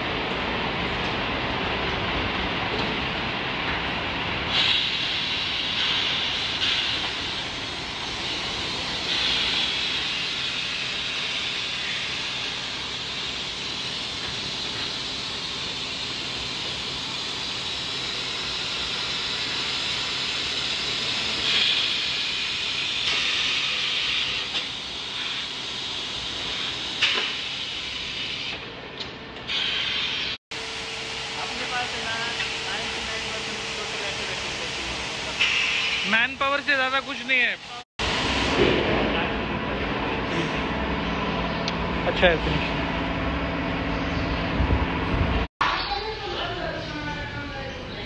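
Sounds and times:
machine hissing: 4.4s - 28.6s, 29.5s - 39.3s.

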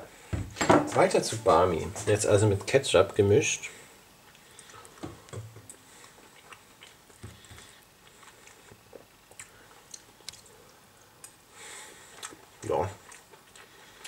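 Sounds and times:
person chewing food: 4.2s - 14.0s.

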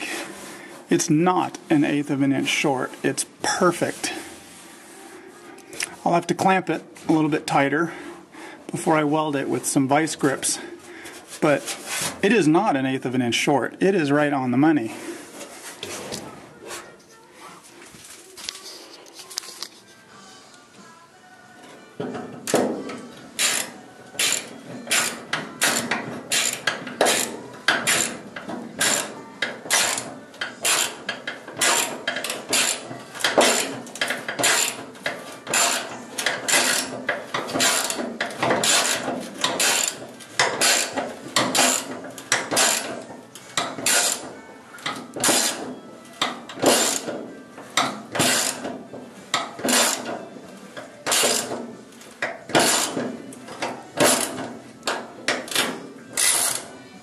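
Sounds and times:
ratchet wrench clicking: 23.4s - 28.2s, 28.8s - 29.1s, 29.7s - 34.9s, 35.5s - 37.0s, 37.6s - 42.9s, 43.6s - 44.3s, 44.9s - 45.6s, 46.6s - 47.2s, 48.2s - 48.7s, 49.7s - 50.1s, 51.1s - 51.6s, 52.6s - 53.0s, 55.4s - 56.6s.

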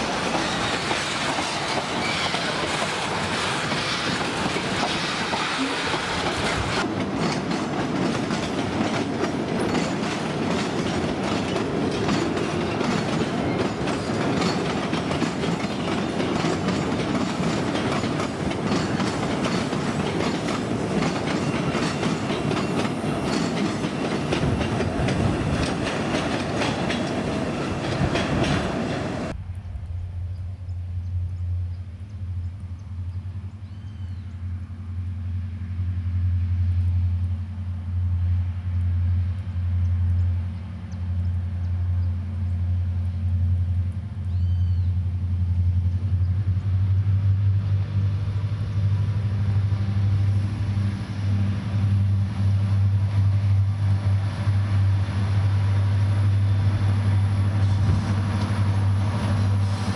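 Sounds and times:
train wheels clacking over rail joints: 0.0s - 29.4s.

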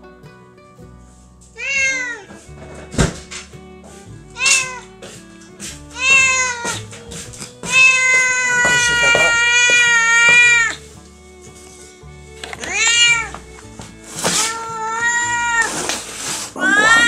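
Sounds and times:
faint background music: 0.0s - 17.0s
cat meowing: 1.6s - 2.3s, 4.4s - 4.9s, 5.9s - 6.8s, 7.6s - 10.8s, 12.6s - 13.4s, 14.3s - 17.0s.

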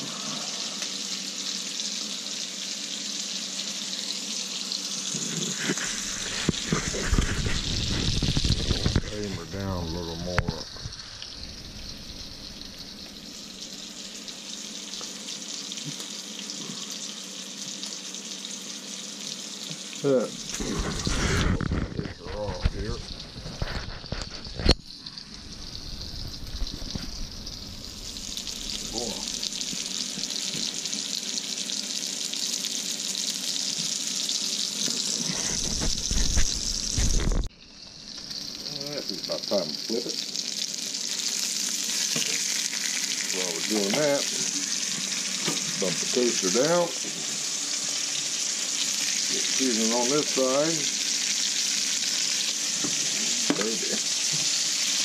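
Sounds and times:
steak sizzling in a skillet: 0.0s - 55.0s
low rumble: 25.4s - 29.5s.

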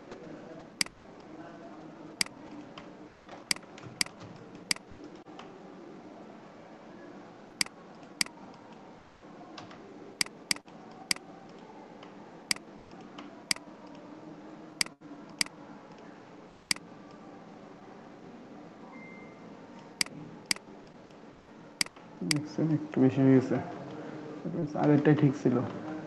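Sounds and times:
faint room noise: 0.0s - 26.0s
computer mouse clicking: 3.5s - 5.1s, 7.6s - 8.6s, 10.2s - 11.6s, 14.8s - 16.1s.

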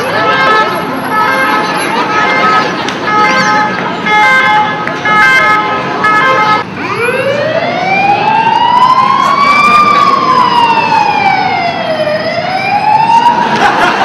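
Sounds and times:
siren-like wailing tone: 2.4s - 13.4s.

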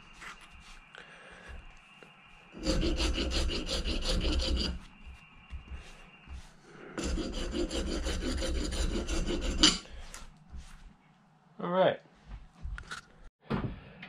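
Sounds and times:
wood rasp scraping wood: 2.6s - 4.9s, 6.8s - 10.3s.

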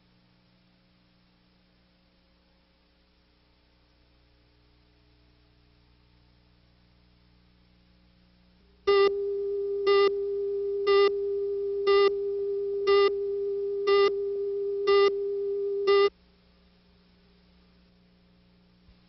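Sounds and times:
buzzy beeps: 8.9s - 16.1s
steady electronic tone: 8.9s - 16.1s.

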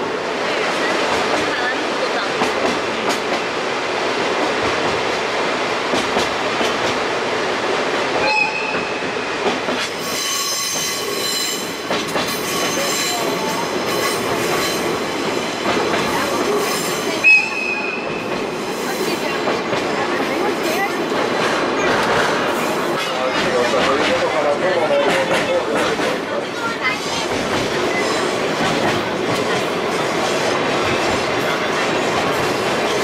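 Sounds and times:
train rumbling on track: 0.0s - 33.0s
train wheel squeals: 9.8s - 14.9s, 16.4s - 19.2s.

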